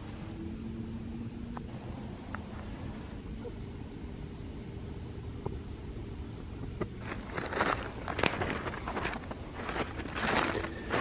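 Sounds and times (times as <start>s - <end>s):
footsteps on trail: 7.0s - 11.0s.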